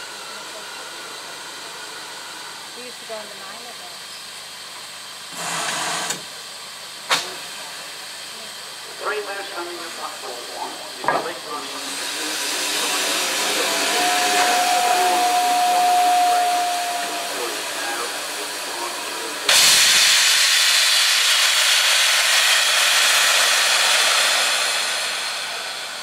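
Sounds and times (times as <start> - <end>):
steam locomotive hissing: 0.0 - 26.0
loud rush of escaping steam: 5.3 - 6.2, 7.0 - 26.0
steam whistle: 12.6 - 20.4.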